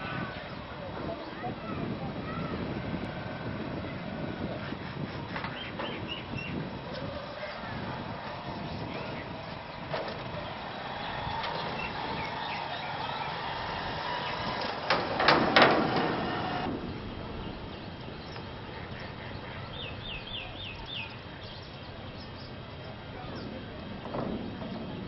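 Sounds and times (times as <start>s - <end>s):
bird chirping: 5.4s - 7.7s, 8.5s - 14.7s, 16.4s - 24.9s
loud knocks: 14.4s - 16.8s, 23.9s - 25.0s.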